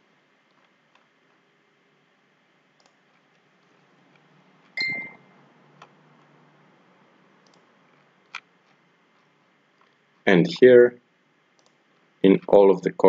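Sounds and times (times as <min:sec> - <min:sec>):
computer mouse clicks: 0:02.8 - 0:03.4, 0:07.4 - 0:10.0, 0:11.6 - 0:11.8.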